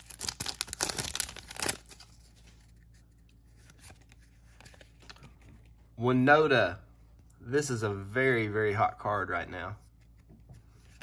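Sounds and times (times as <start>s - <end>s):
foil wrapper tearing: 0.0s - 2.1s.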